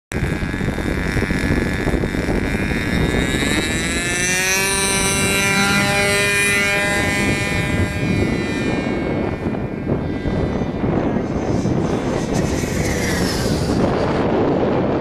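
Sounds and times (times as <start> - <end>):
model airplane engine running: 0.1 - 15.0.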